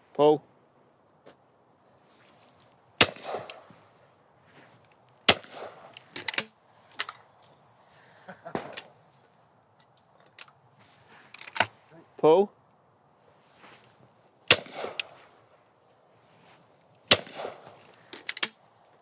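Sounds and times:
shotgun shots: 3.0 - 3.7, 5.3 - 6.5, 14.5 - 15.2, 17.1 - 17.8
shotgun breaking open and ejecting: 5.3 - 7.3, 17.1 - 18.6.

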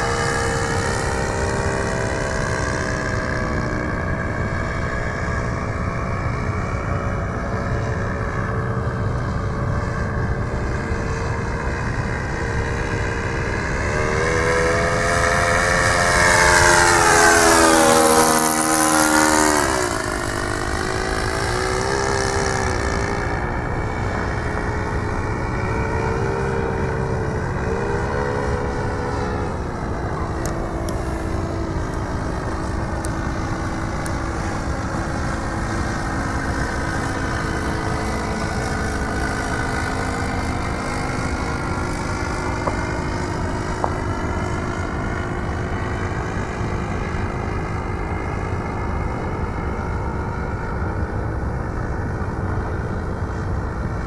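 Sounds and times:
propeller plane engine droning: 0.0 - 54.0.

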